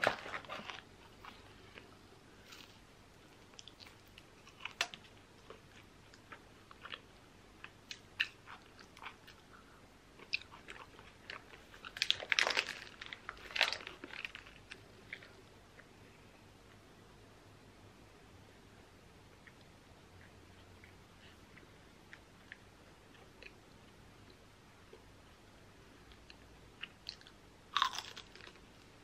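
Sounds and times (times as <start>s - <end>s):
soft chewing: 0.2s - 16.8s, 19.3s - 25.1s, 26.1s - 28.9s
paper wrapper crinkling: 11.8s - 14.8s.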